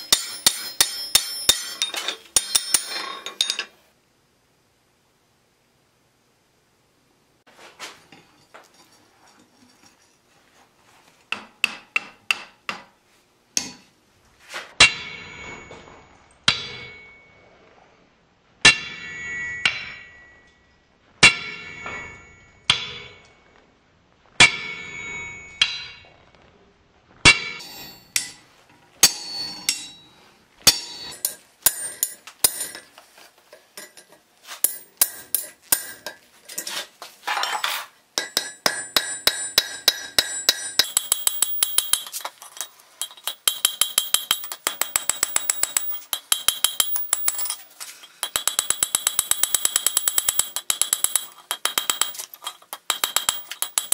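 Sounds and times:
hammer ringing on hot iron: 0.0 - 3.6, 14.8 - 15.7, 16.5 - 17.4, 18.7 - 23.4, 24.4 - 26.0, 27.3 - 32.9, 34.6 - 36.2, 38.2 - 53.9.

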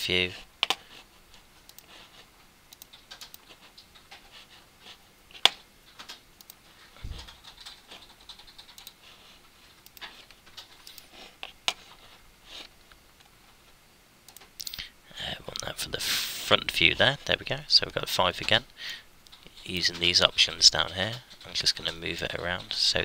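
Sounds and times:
computer mouse clicks: 1.6 - 1.9, 2.7 - 4.3, 5.4 - 6.6, 7.2 - 9.0, 9.8 - 11.8, 14.3 - 14.8.

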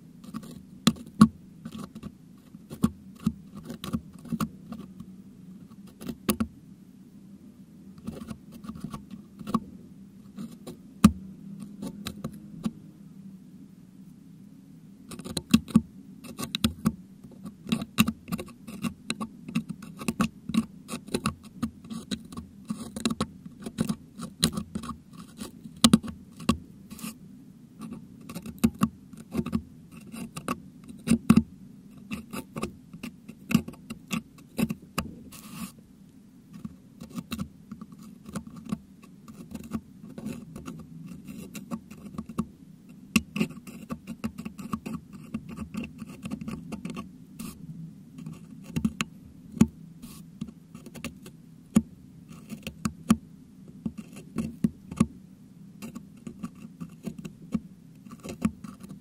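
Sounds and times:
low steady hum: 0.0 - 59.0.

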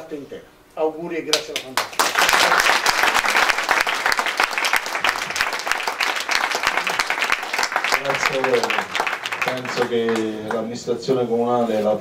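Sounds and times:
audience applause: 1.8 - 10.8.

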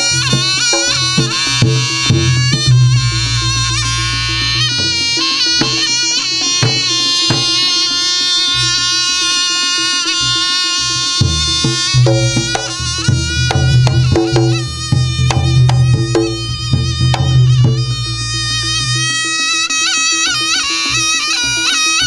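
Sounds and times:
drums: 0.0 - 7.7, 11.2 - 18.2
gongs: 0.0 - 22.0
reedy shawm melody: 0.0 - 22.0.

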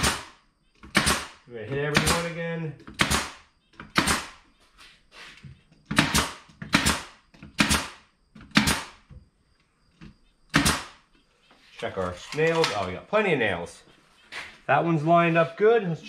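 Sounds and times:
nail gun shots: 0.0 - 4.4, 5.9 - 9.1, 10.5 - 11.0.

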